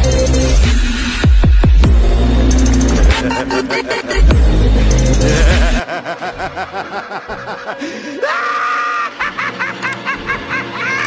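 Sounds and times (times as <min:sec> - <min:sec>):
electronic dance music: 0:00.0 - 0:05.8
high-pitched laughing voice: 0:08.3 - 0:11.0.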